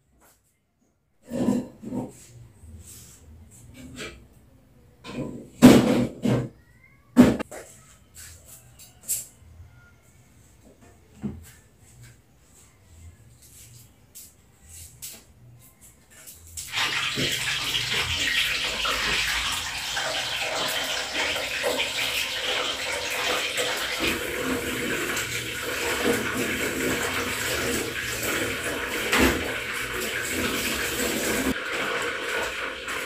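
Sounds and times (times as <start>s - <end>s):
tap water running into sink: 16.7s - 33.0s.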